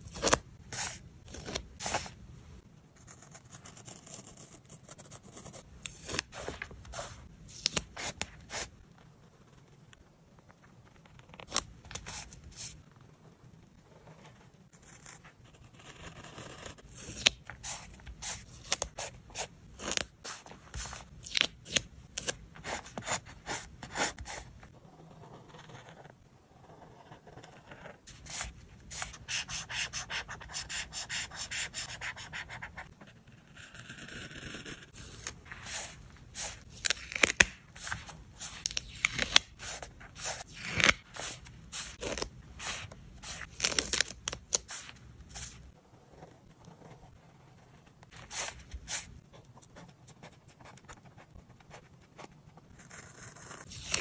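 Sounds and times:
marker scratching on paper: 26.7s - 33.0s, 37.8s - 43.5s.

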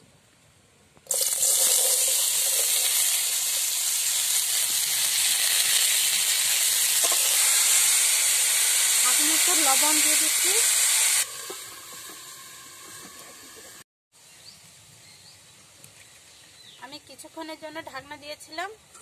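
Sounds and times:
vegetables frying in hot oil: 1.1s - 13.8s.

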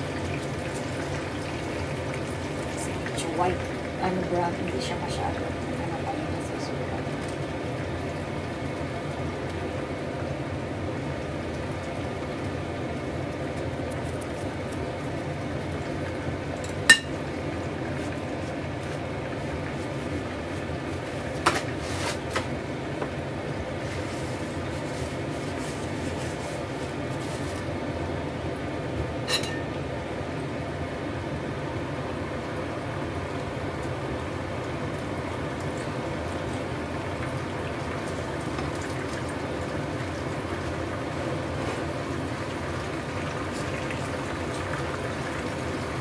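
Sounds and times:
steady cooking hiss: 0.0s - 46.0s
utensil clinking against pan: 16.7s - 17.1s, 29.3s - 29.7s.

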